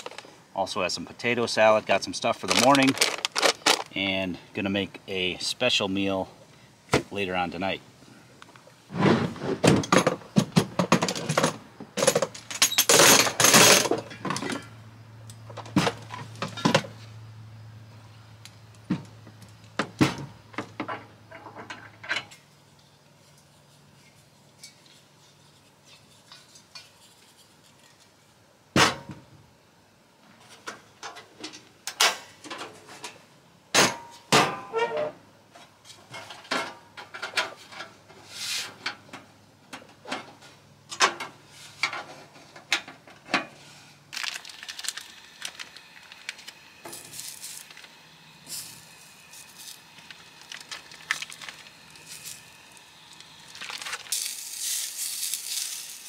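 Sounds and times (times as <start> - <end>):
food packaging rustling: 0.0 - 0.3, 2.2 - 4.0, 44.0 - 56.0.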